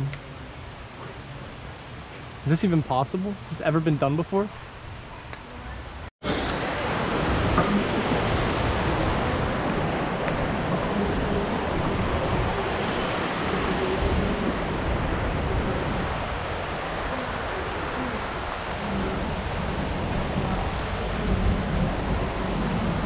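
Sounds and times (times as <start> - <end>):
wind buffeting microphone: 4.6 - 23.0.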